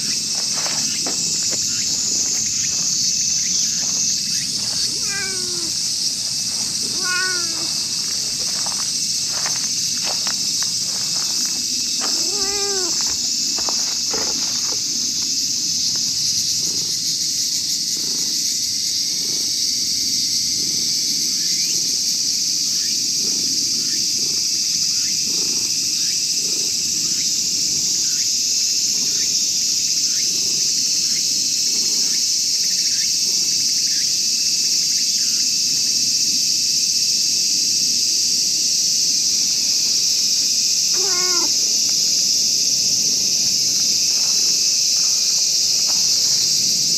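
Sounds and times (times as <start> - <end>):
insects droning: 0.0 - 46.9
cat meowing: 4.8 - 5.8, 6.8 - 7.8, 12.1 - 13.1, 40.9 - 41.6.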